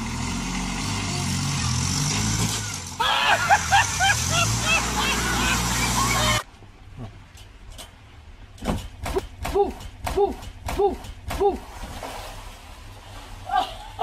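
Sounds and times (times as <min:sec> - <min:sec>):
squeaky trampoline bounces: 0:08.6 - 0:11.7
water splash: 0:09.0 - 0:14.0.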